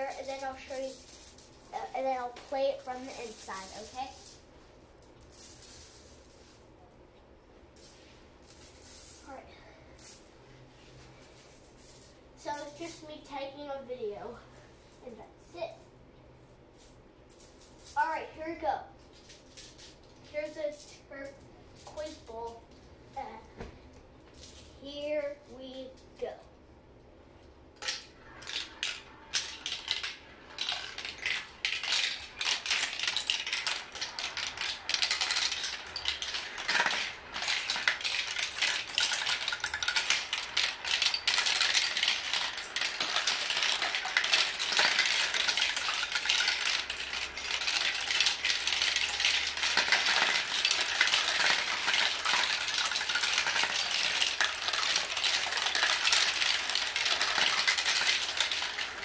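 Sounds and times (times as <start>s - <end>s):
marbles rattling down plastic track: 0.0s - 4.4s, 5.0s - 6.6s, 7.8s - 9.4s, 27.8s - 59.0s.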